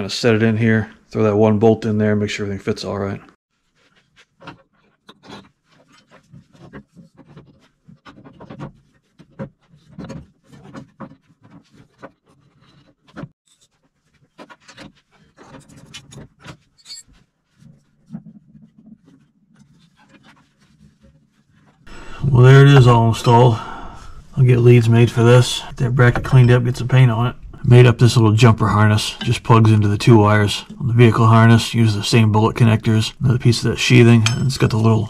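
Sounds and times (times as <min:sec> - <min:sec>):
metal clicks knocks and scrapes: 0:04.2 - 0:21.8.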